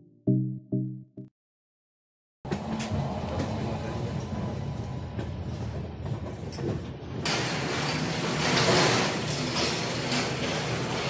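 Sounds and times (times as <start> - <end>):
station platform ambience: 2.5 - 11.0
train low rumble: 2.5 - 11.0.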